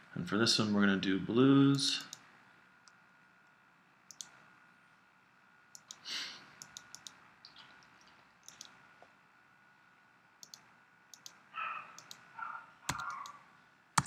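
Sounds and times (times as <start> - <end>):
faint computer mouse clicks: 4.1 - 4.4, 5.7 - 6.0, 6.6 - 7.2, 8.4 - 8.8, 10.4 - 11.4, 12.0 - 12.2.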